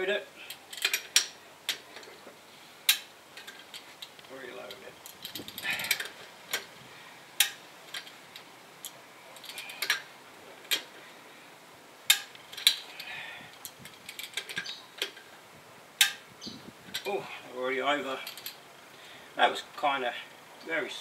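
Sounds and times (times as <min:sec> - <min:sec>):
metal clinking: 0:00.5 - 0:02.2, 0:07.4 - 0:11.0.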